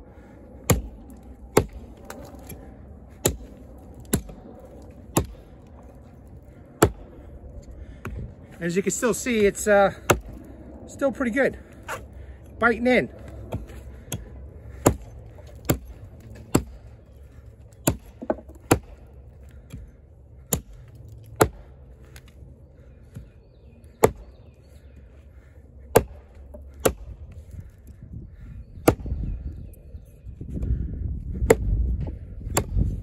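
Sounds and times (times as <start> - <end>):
axe chopping into log: 0.7 - 0.9, 5.1 - 5.4, 6.8 - 7.0, 10.0 - 10.4, 16.5 - 16.8, 17.8 - 19.0, 20.5 - 20.8, 21.4 - 21.7, 24.0 - 24.2, 25.9 - 27.1, 28.8 - 29.1, 31.4 - 31.7, 32.5 - 32.9.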